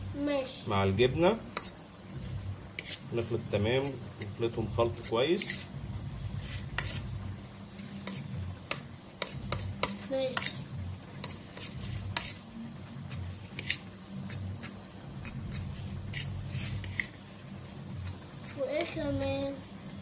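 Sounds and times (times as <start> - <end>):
fork scraping plastic bowl: 2.8 - 3.0, 5.0 - 5.7, 6.4 - 7.1, 7.7 - 8.3, 9.2 - 10.6, 11.2 - 12.4, 13.1 - 17.2.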